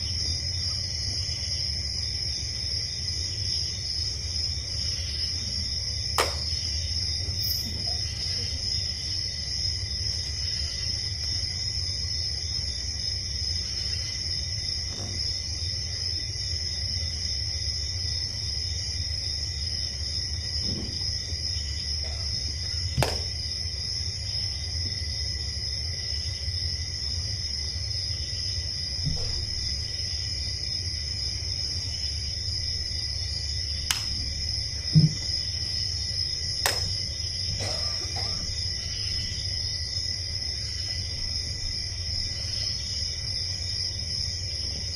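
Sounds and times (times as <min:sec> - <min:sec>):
knocks and thump on floor: 0:23.0 - 0:23.3, 0:34.9 - 0:35.4.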